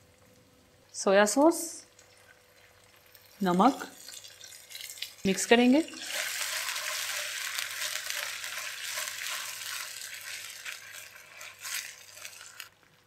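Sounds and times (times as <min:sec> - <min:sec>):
sauce sizzling in hot oil: 0:01.8 - 0:13.0
spatula stirring in wok: 0:06.0 - 0:12.8.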